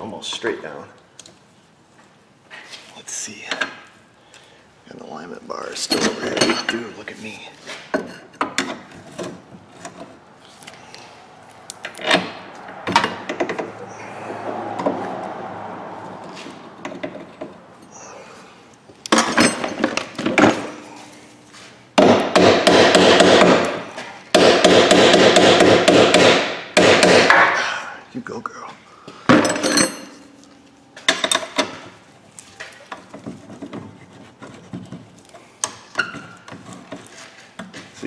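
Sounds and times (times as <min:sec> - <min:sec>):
rapid metal-on-metal strikes: 0:22.0 - 0:27.6.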